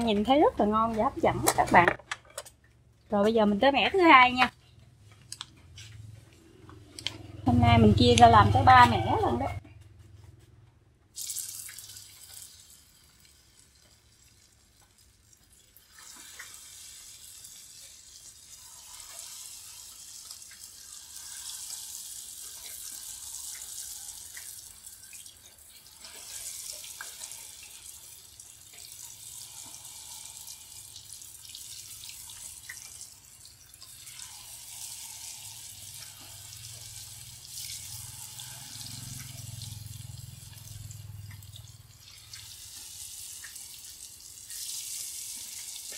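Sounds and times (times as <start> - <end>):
food deep-frying in hot oil: 0.0 - 1.9, 3.1 - 4.5, 11.1 - 45.9.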